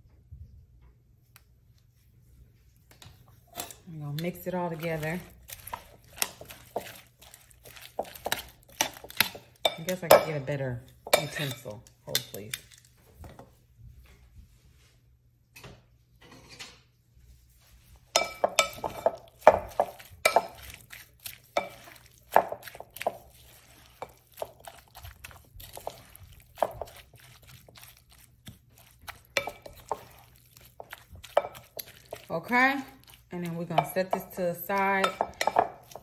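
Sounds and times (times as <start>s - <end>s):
spatula tossing salad in glass bowl: 3.0s - 13.4s, 17.6s - 36.0s.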